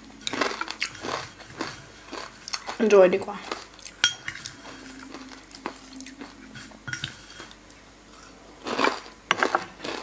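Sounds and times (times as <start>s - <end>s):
cutlery clinking on a ceramic plate: 4.0s - 4.5s.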